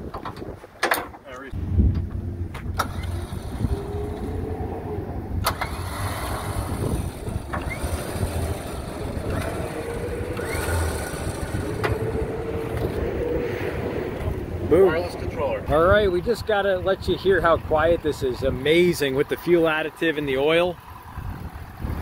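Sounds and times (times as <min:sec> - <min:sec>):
electric winch motor whining: 0:02.8 - 0:14.7.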